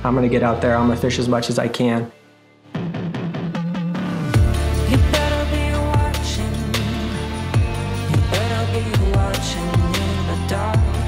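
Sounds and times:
electronic song with beat: 2.7s - 11.0s.

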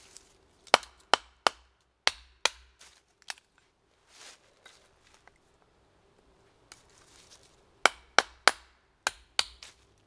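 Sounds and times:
soft rustle: 0.0s - 0.6s, 2.8s - 5.6s, 6.4s - 7.6s
knife chopping firewood: 0.6s - 3.4s, 7.8s - 9.8s.

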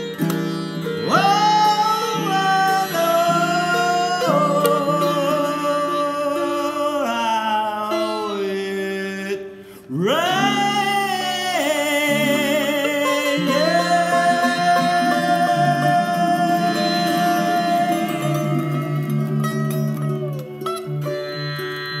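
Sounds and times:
sitar and ukulele: 0.0s - 9.5s, 10.2s - 22.0s
man singing: 0.8s - 20.7s.

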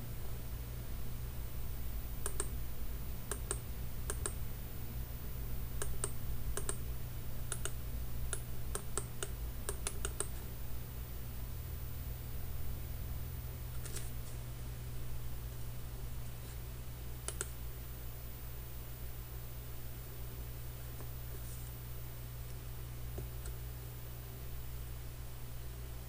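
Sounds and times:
steady low hum: 0.0s - 26.0s
mouse buttons clicking: 2.2s - 2.5s, 3.3s - 4.4s, 5.8s - 6.8s, 7.5s - 10.4s, 17.2s - 17.6s.

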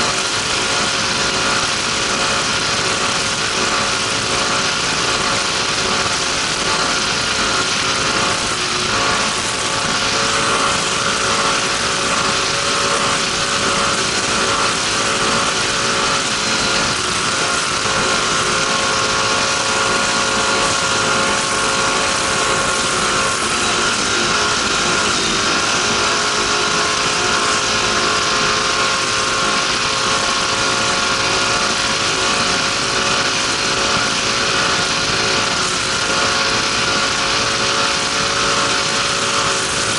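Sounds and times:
boat engine at high revs: 0.0s - 39.9s.

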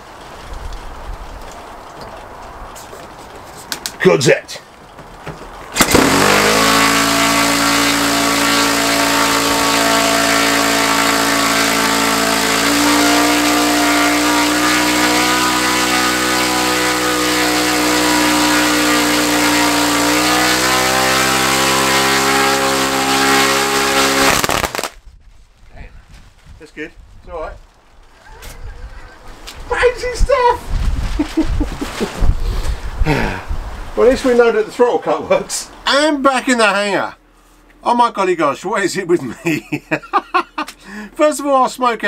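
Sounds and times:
model aircraft engine running: 5.8s - 24.5s.

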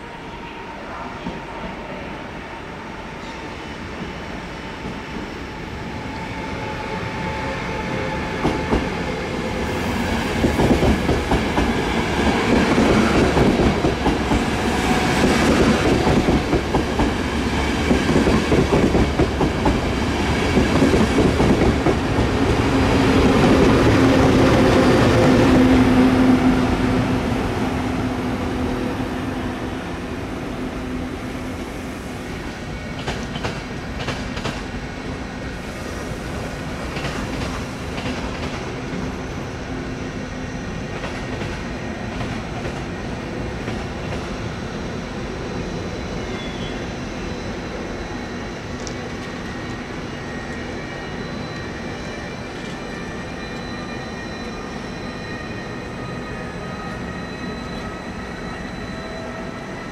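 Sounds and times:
train rumble: 7.6s - 30.2s
train wheels clacking: 8.4s - 25.7s, 32.9s - 34.7s, 36.7s - 38.9s.

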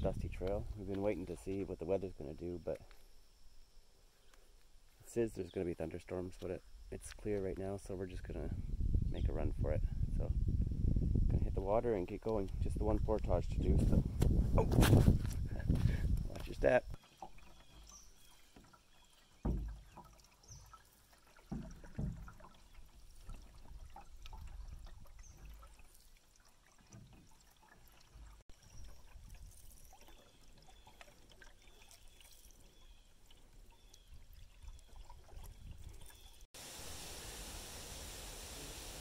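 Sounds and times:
water dripping off paddle: 17.0s - 36.4s.

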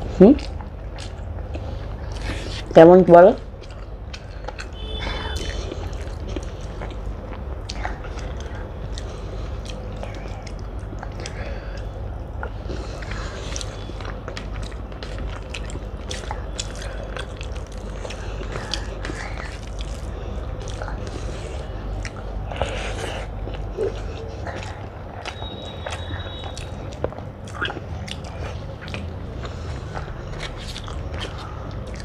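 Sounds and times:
steady low hum: 0.0s - 32.0s
chewing with wet mouth clicks: 0.2s - 2.8s, 3.4s - 32.0s.

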